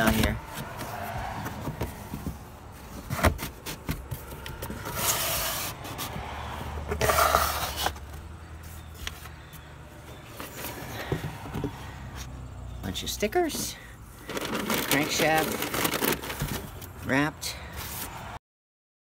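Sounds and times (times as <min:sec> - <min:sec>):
cardboard box scraping: 0:00.0 - 0:08.1.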